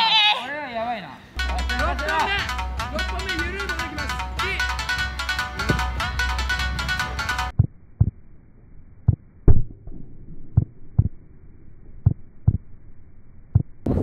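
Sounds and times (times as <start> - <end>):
heartbeat double thumps: 5.5 - 8.2, 9.1 - 11.2, 12.0 - 12.7, 13.5 - 14.0.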